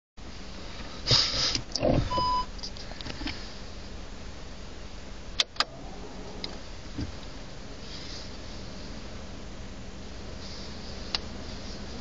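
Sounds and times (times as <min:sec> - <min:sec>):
low cabin hum: 0:00.2 - 0:12.0
parking sensor beep: 0:02.0 - 0:02.5
rustle: 0:05.6 - 0:12.0.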